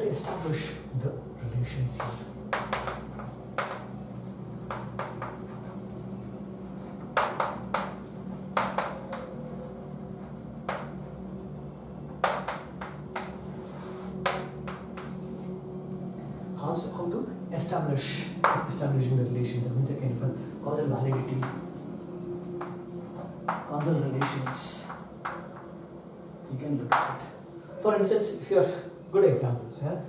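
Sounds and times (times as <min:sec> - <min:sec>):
steady low hum: 0:00.0 - 0:30.0
chalk tapping on blackboard: 0:01.9 - 0:05.8, 0:07.0 - 0:15.2, 0:23.5 - 0:25.6.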